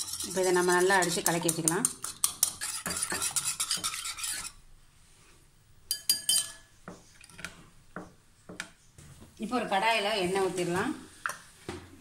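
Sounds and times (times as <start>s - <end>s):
whisk clinking against bowl: 0.0s - 4.5s, 5.9s - 6.7s
whisk beating eggs in glass bowl: 0.0s - 4.6s.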